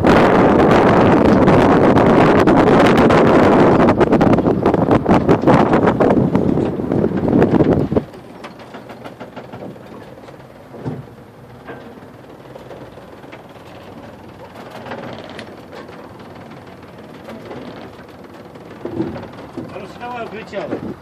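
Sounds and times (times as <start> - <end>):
wind buffeting microphone: 0.0 - 21.0.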